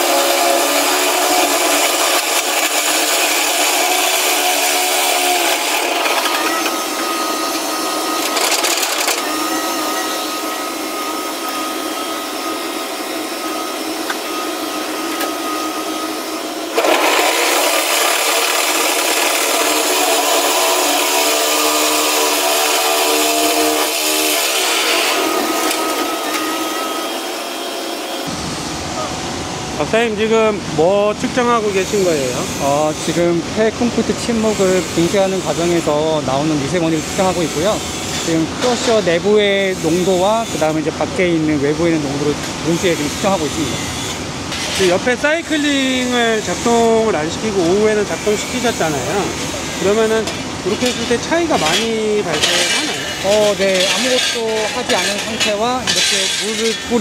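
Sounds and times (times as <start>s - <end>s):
crusher bucket grinding concrete: 0.0s - 28.3s, 31.9s - 57.0s
excavator engine and hydraulics: 5.0s - 19.5s.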